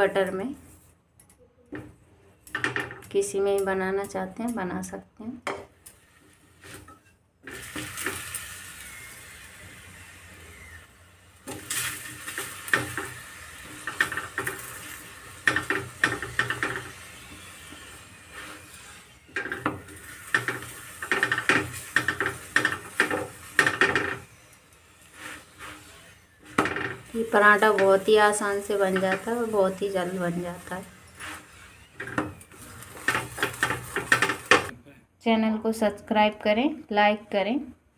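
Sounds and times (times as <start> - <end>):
steel spoon scraping a griddle: 5.7 - 8.8, 11.4 - 34.7
flatbread sizzling in oil: 5.8 - 34.7.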